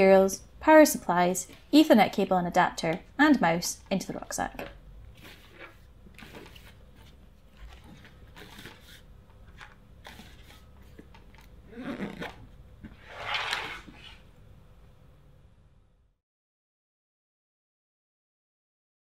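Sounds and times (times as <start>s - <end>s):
rucksack fabric rustling: 5.0s - 14.3s.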